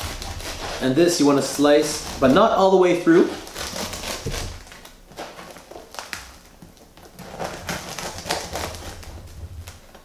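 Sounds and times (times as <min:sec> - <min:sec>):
knife sawing through crusty bread: 0:00.0 - 0:04.6, 0:07.2 - 0:09.6.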